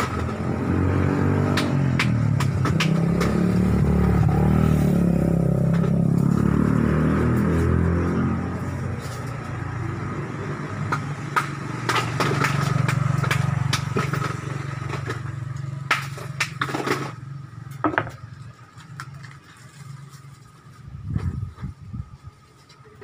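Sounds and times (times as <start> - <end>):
sharp clicks and knocks: 1.4 - 3.9
motorcycle engine humming: 17.2 - 22.3.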